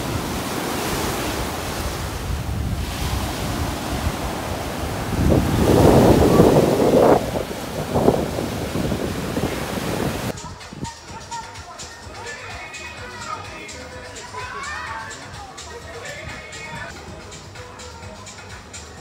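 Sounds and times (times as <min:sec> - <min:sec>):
sea waves washing onto beach: 0:00.0 - 0:10.4
wind rumbling on microphone: 0:00.0 - 0:10.8.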